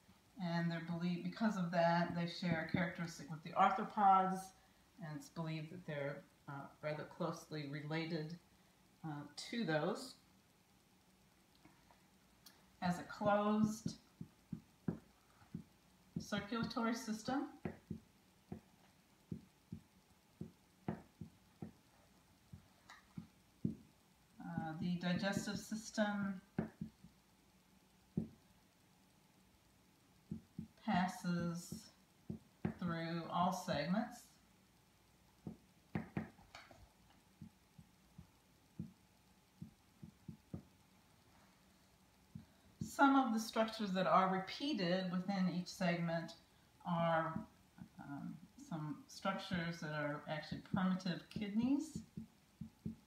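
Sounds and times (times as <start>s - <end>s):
faint steady hum: 0.0s - 53.0s
marker writing on whiteboard: 13.6s - 18.7s, 19.3s - 21.8s, 26.6s - 27.1s, 35.4s - 36.4s
marker tapping on whiteboard: 13.8s - 15.7s, 17.6s - 18.7s, 19.3s - 21.8s, 22.5s - 23.9s, 26.6s - 27.1s, 28.2s - 28.4s, 30.3s - 30.8s, 35.4s - 36.4s, 37.4s - 39.0s, 39.6s - 40.7s, 50.7s - 53.0s.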